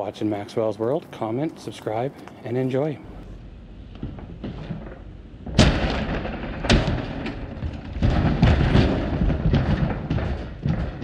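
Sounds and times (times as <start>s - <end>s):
metal banging and clattering: 3.9s - 11.0s.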